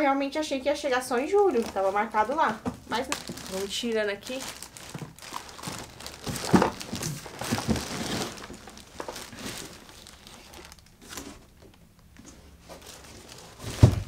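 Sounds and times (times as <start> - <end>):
plastic film crinkling: 1.1 - 14.0
cardboard box rustling: 4.5 - 11.5.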